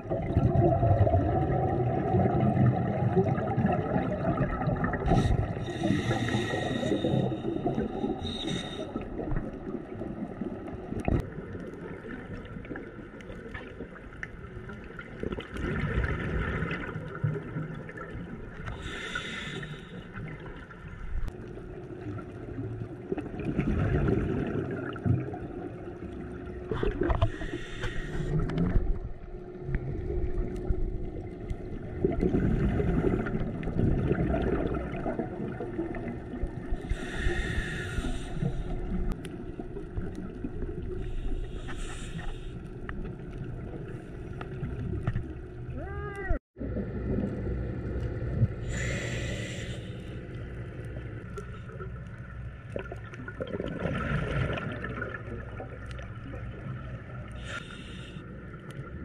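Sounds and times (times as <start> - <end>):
exhaled bubbles gushing: 0.0 - 18.9, 21.6 - 27.4, 28.3 - 37.6, 52.6 - 57.4
regulator inhalation hiss: 5.2 - 7.5, 8.2 - 9.0, 18.8 - 20.0, 27.3 - 28.4, 36.8 - 38.9, 41.0 - 42.6, 48.7 - 50.2, 57.4 - 58.2.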